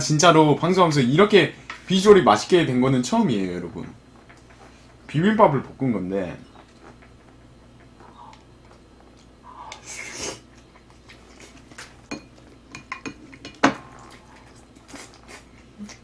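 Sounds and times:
utensils clinking against bowls: 12.0s - 14.1s.

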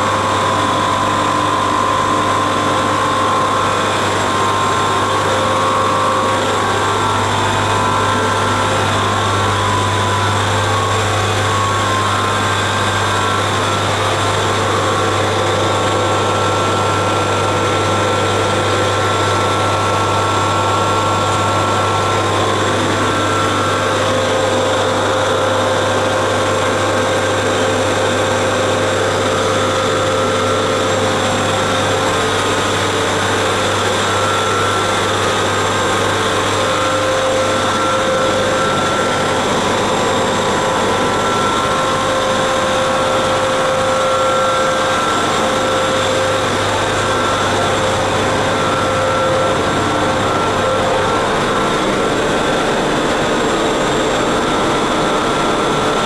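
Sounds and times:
locomotive machinery humming: 0.0s - 26.0s, 28.9s - 56.0s
machinery whines and whirring: 0.0s - 56.0s.

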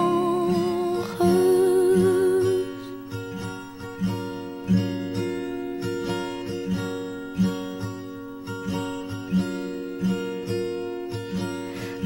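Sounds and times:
woman singing long note: 0.0s - 2.8s
acoustic strings strumming chords: 0.0s - 12.0s.

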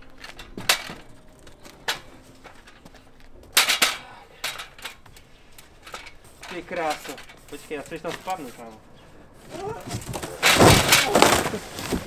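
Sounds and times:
metal stepladder clanking: 0.0s - 8.8s.

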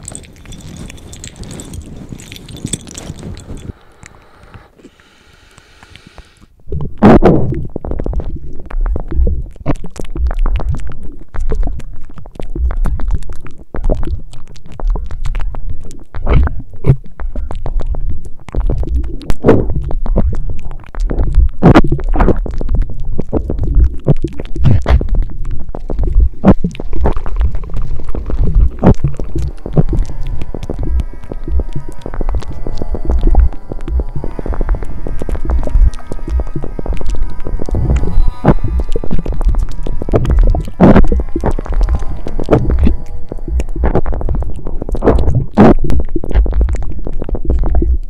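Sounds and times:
wet chewing crunches: 0.0s - 48.0s
low rumble: 18.7s - 48.0s.

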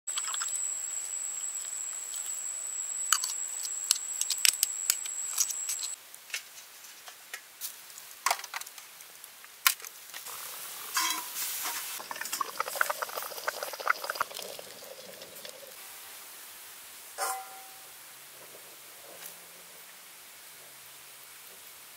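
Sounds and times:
high-pitched whine: 0.1s - 6.0s
leaves rustling: 0.1s - 21.9s.

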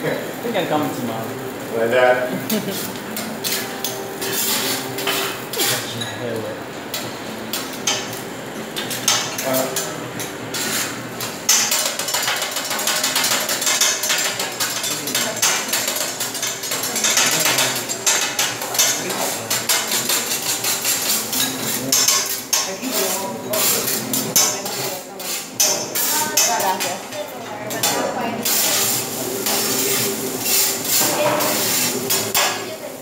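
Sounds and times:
metal spatula scraping a griddle: 2.5s - 6.0s, 10.5s - 27.0s, 27.7s - 32.7s.

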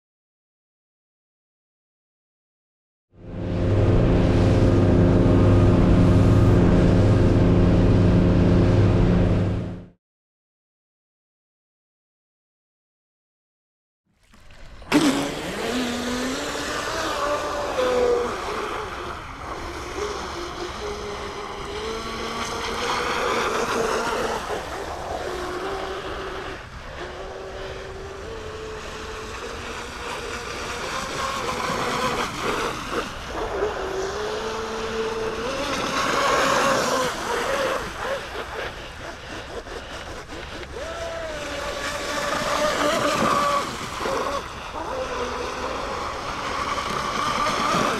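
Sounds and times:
water rushing: 14.2s - 47.9s
rc boat motor running: 14.8s - 47.9s.

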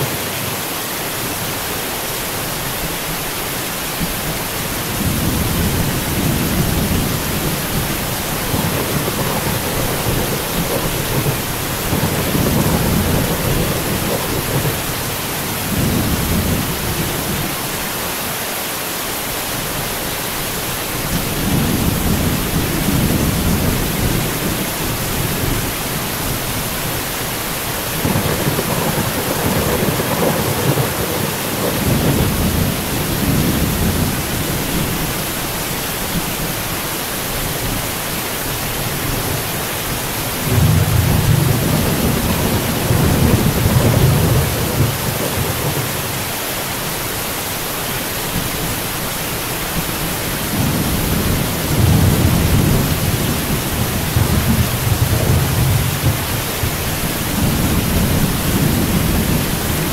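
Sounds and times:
rain hissing: 0.0s - 59.9s
low thunder rumbles: 4.2s - 17.5s, 21.0s - 27.1s, 27.7s - 35.4s, 40.2s - 46.4s, 49.8s - 59.9s.

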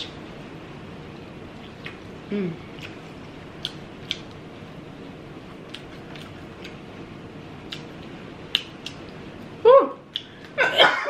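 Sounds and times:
quiet chewing: 2.7s - 4.4s, 5.5s - 6.8s, 7.6s - 9.2s.

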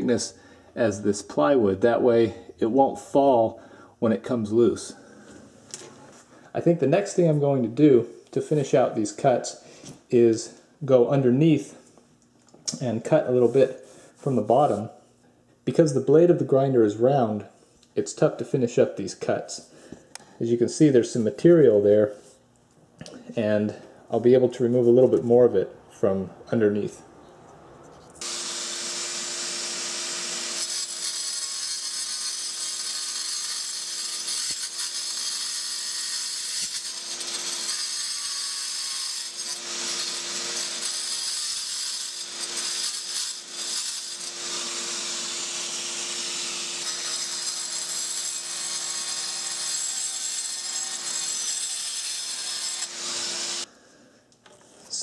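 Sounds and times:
angle grinder cutting stone: 28.2s - 53.7s.

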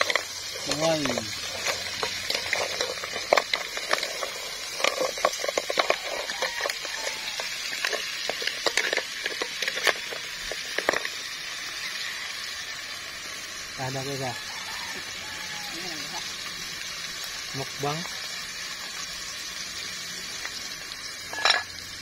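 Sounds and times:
clams clattering in metal pot: 0.0s - 11.8s, 21.0s - 22.0s
steady hiss: 0.0s - 22.0s.

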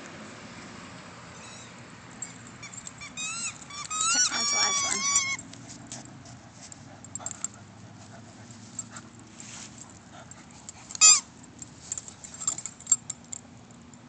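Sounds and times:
dog whining: 1.4s - 5.5s
faint rustling: 4.7s - 13.4s.

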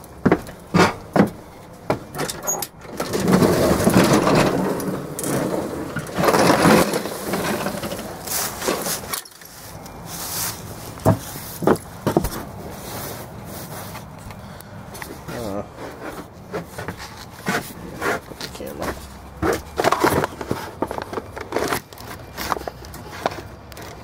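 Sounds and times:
lawn mower rattling over ground: 0.0s - 13.9s.

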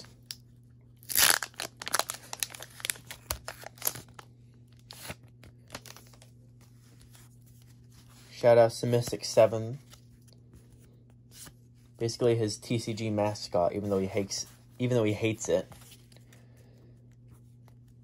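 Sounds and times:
foil wrapper ripping: 1.0s - 6.2s
wrapper crinkling: 1.0s - 6.3s.

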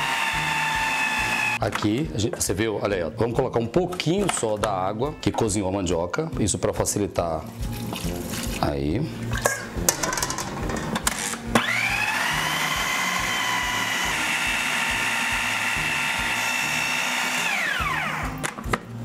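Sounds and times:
food processor motor whine: 0.0s - 1.6s, 11.5s - 18.5s.

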